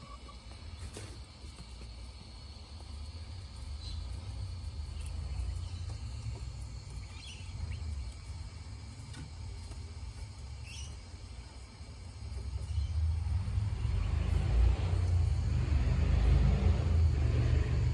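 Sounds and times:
low rumble: 12.7s - 17.9s.

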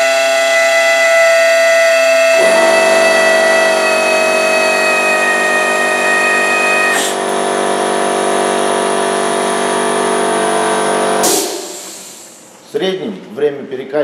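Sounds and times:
pneumatic pump whine: 0.0s - 12.5s
air hiss: 11.2s - 12.5s.

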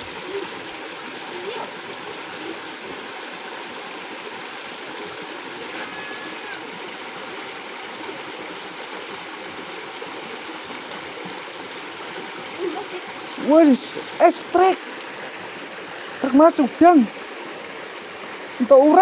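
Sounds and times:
river water running over rocks: 0.0s - 19.0s.

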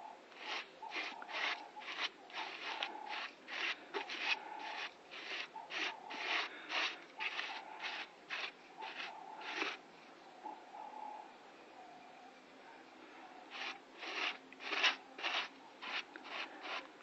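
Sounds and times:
faint steady tone: 0.0s - 17.0s
hand tool rubbing a surface: 0.4s - 9.8s, 13.5s - 16.9s.

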